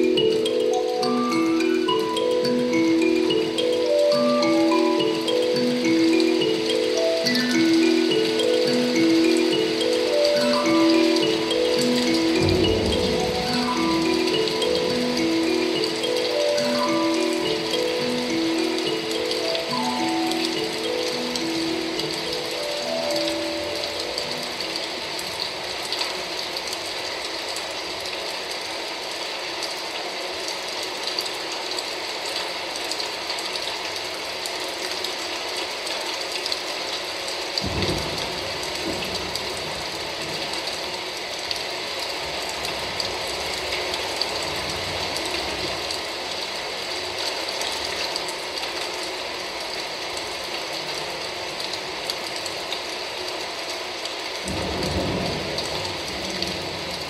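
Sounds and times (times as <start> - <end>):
rain patter over speakers: 0.0 - 57.0
thunder rumbling: 37.6 - 40.9, 54.5 - 57.0.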